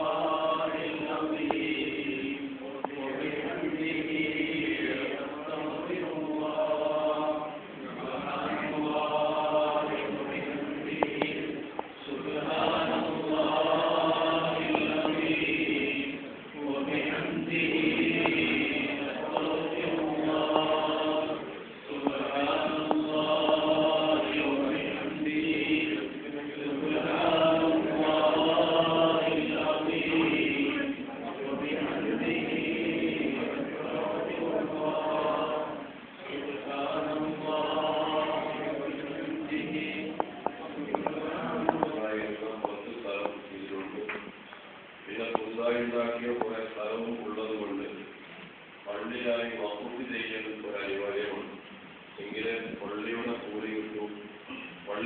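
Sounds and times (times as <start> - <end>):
voices chanting: 0.0 - 43.8.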